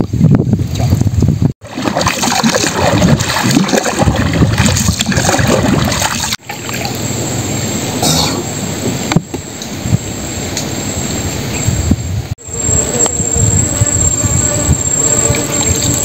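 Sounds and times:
paddle splashing in water: 1.6s - 6.9s
thin high steady tone: 12.4s - 16.0s.

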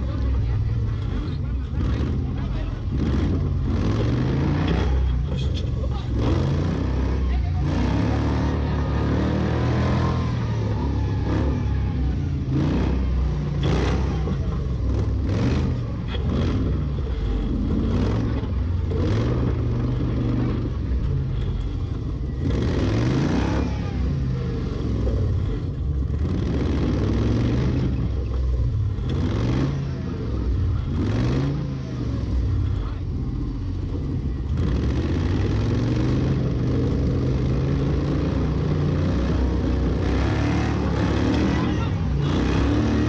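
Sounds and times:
off-road vehicle engine revving: 0.0s - 43.0s.

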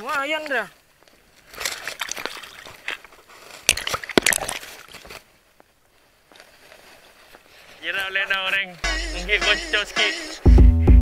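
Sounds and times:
sea water splashing: 1.6s - 3.0s.

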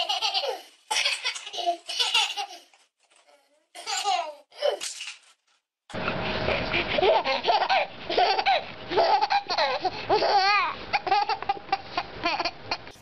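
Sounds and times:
baby laughing: 0.0s - 2.7s, 6.7s - 13.0s.

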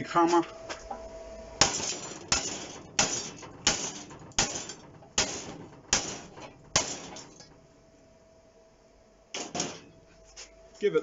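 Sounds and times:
hammer striking steel plate: 1.6s - 7.5s, 9.4s - 10.0s.

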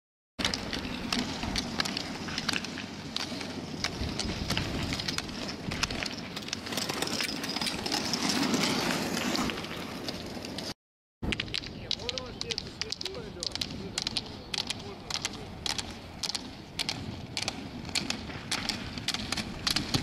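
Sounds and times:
pole tips clicking on road: 0.4s - 7.3s, 11.2s - 20.0s
roller skis rolling over asphalt: 0.4s - 20.0s.

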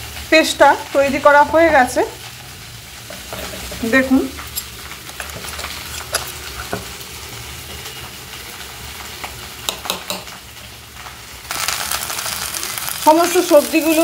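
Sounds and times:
vegetables sizzling in oil: 0.0s - 14.0s
metal spoon scraping steel jar: 4.4s - 6.8s.

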